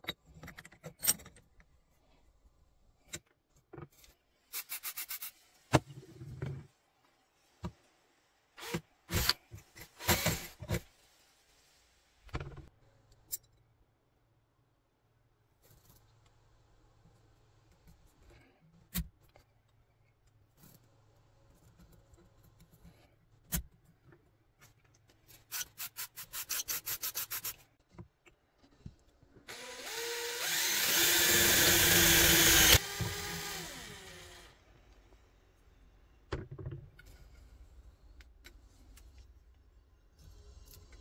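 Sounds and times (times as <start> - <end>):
cordless drill grinding through metal: 29.5 - 34.6.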